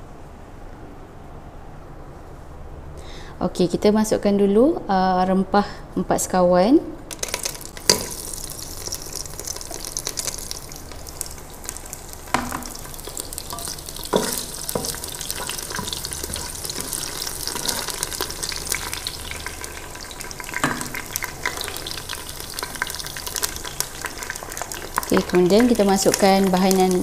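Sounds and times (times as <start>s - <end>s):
spices sizzling in hot oil: 7.1s - 27.0s
spatula knocking against pot: 13.6s - 15.1s.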